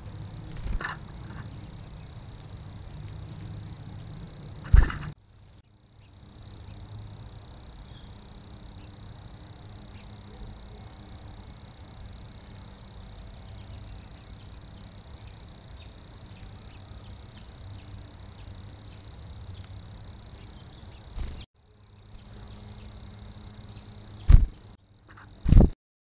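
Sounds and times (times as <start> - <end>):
faint ticks: 0.5 - 5.1.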